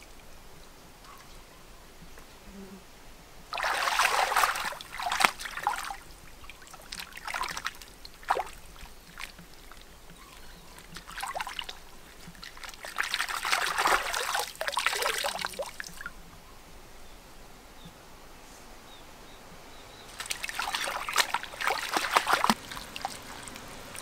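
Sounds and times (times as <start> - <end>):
water sloshing and splashing: 3.5 - 16.2, 20.1 - 24.0
water trickling: 3.5 - 16.2, 20.1 - 24.0.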